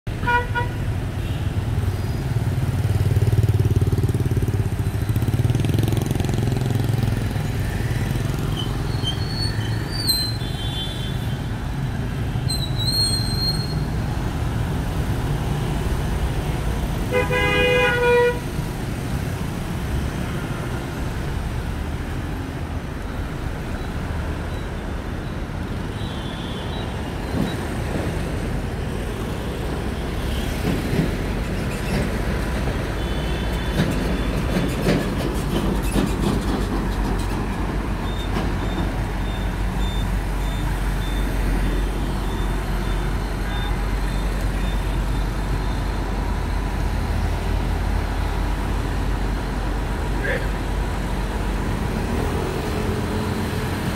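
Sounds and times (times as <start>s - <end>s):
vehicle horn: 0.2s - 1.4s, 17.1s - 18.5s
motorbikes and cars passing: 0.4s - 26.0s, 26.9s - 53.9s.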